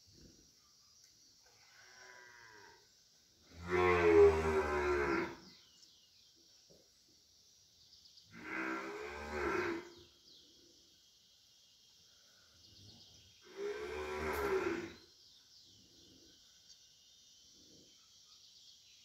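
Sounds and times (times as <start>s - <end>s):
cow mooing: 3.6s - 5.4s, 8.4s - 9.9s, 13.5s - 15.0s.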